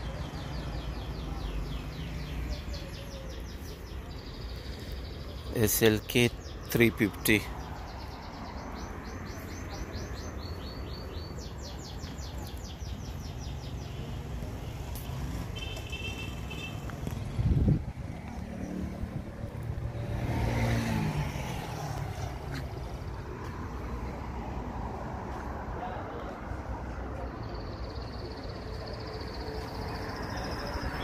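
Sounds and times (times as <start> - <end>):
bird chirping: 0.0 - 14.0
low traffic rumble: 0.0 - 31.0
vehicle engine passing: 17.0 - 25.7.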